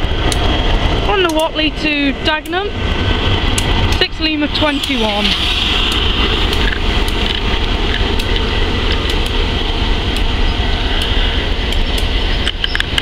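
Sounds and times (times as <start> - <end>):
diesel locomotive engine rumble: 0.0 - 13.0
high hiss: 4.5 - 8.6.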